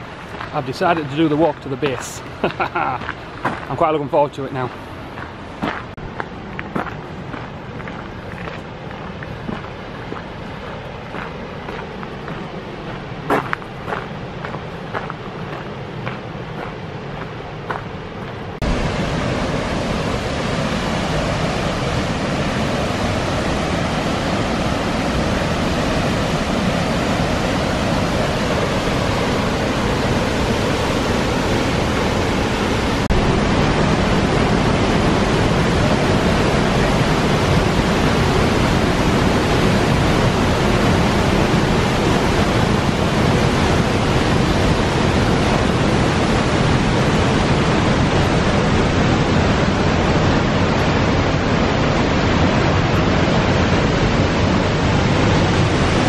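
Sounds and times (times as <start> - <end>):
waterfall rushing: 0.0 - 6.0, 18.5 - 56.0.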